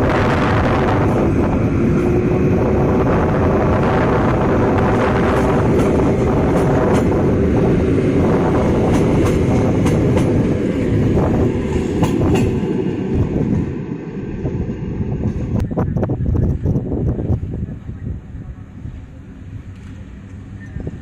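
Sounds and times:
train coaches rolling past: 0.0 - 21.0
wheels clicking over rail joints: 5.2 - 7.3.

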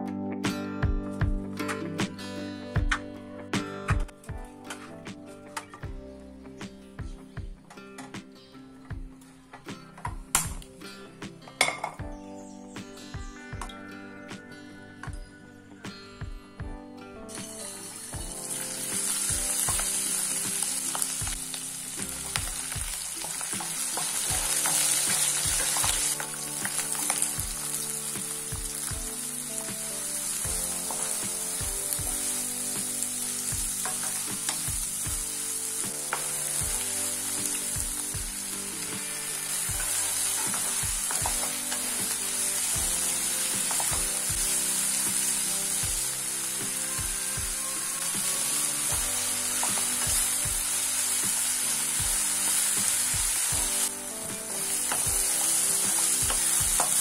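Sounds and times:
oil sizzling in a pan: 17.3 - 57.0.

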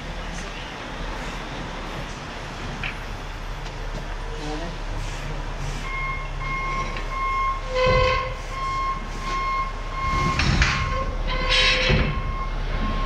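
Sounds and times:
reversing alarm beeping: 5.8 - 13.0.

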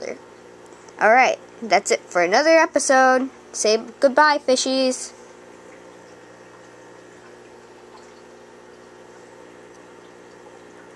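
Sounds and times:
aquarium filter hum: 0.0 - 10.9
water trickling: 5.2 - 10.9.

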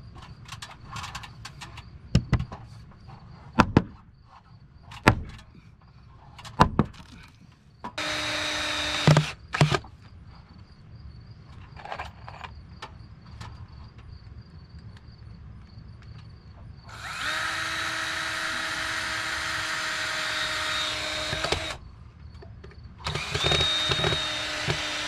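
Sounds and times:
power tool running: 8.0 - 9.9, 16.9 - 21.8, 23.0 - 25.0.

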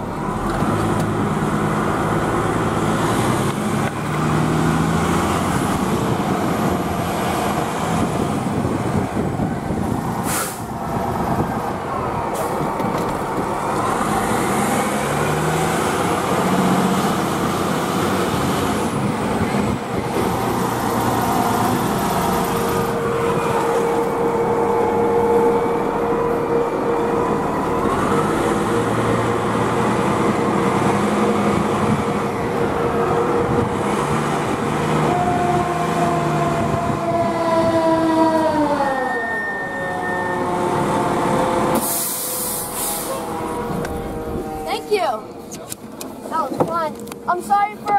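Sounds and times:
diesel engine running: 0.0 - 38.7, 39.9 - 47.9
air brake hiss: 10.2 - 10.8, 41.8 - 43.3.

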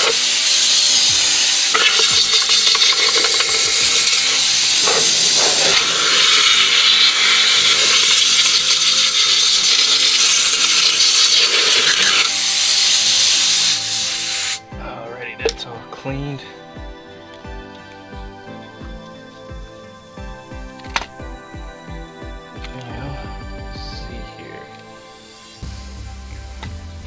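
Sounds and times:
compressed air hissing: 0.0 - 14.7, 22.8 - 27.0.

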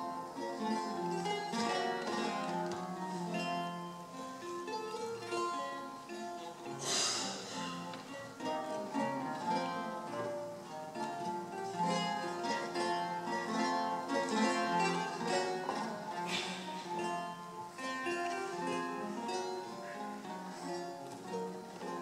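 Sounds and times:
solo lute playing: 0.0 - 22.0.

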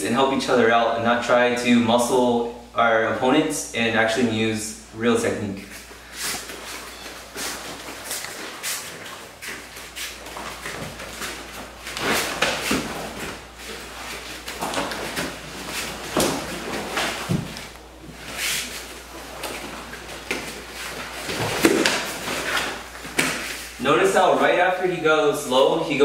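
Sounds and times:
bare feet shuffling on mats: 5.6 - 23.8
fabric uniforms rustling: 5.6 - 23.8
bodies bumping against wall: 6.4 - 18.3.

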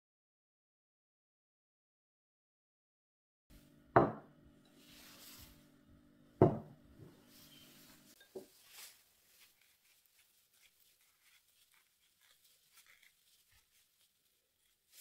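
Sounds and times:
ceramic tableware knocking on wood: 4.0 - 4.3, 6.4 - 6.8.

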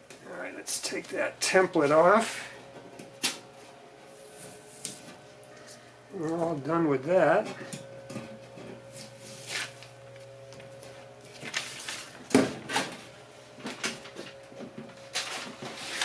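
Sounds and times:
faint steady hum: 0.0 - 16.0
tools rustling and scraping: 7.5 - 16.0.

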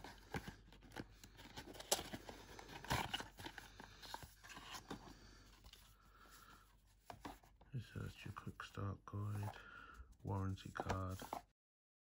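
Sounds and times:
paper leaflets rustling: 9.2 - 11.4.

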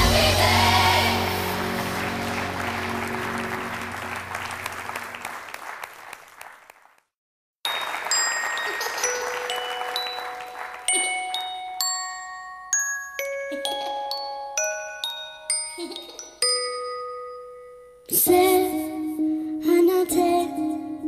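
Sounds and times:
background music: 0.0 - 4.8
bell-like mallet melody: 7.7 - 18.2.

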